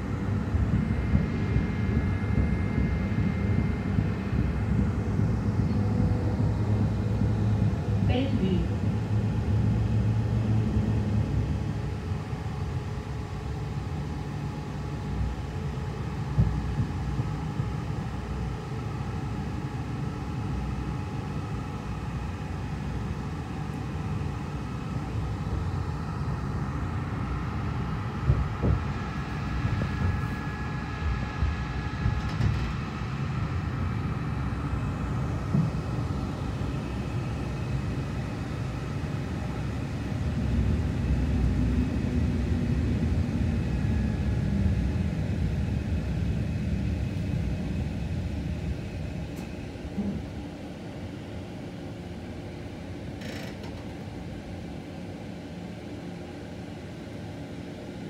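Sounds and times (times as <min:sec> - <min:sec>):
tram wheels rumbling on rails: 0:00.0 - 0:11.6, 0:31.1 - 0:33.6.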